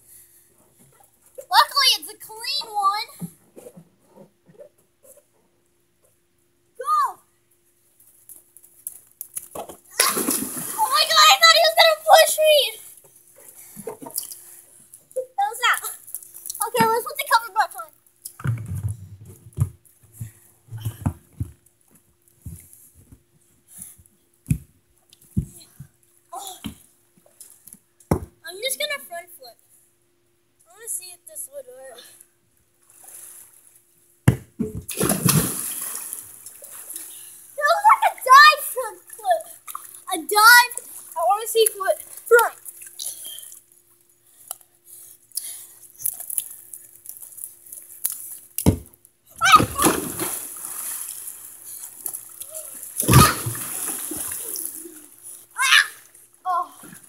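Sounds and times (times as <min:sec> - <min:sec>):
faint steady hum: 0:00.0 - 0:57.0
body thumping onto pool edge: 0:48.6 - 0:50.8, 0:53.0 - 0:54.4.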